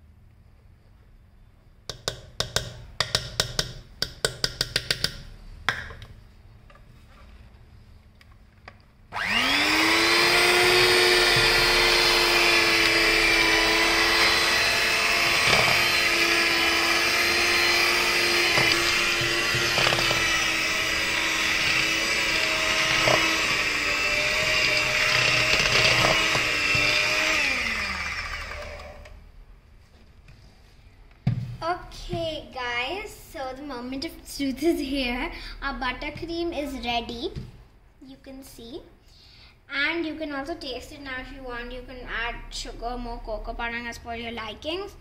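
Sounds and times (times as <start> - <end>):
electric hand mixer whine: 9.1 - 29.2.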